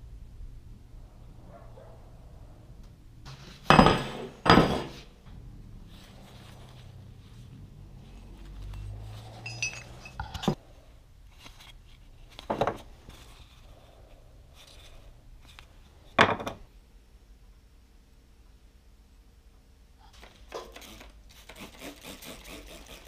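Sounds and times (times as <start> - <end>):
metal heads clinking and knocking: 9.4 - 10.6.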